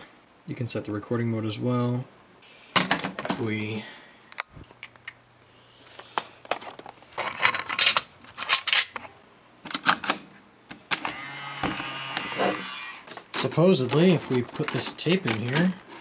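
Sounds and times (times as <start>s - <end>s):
mechanical whirring hum: 10.7s - 14.7s
plastic cassette clicks and clatter: 13.1s - 15.8s.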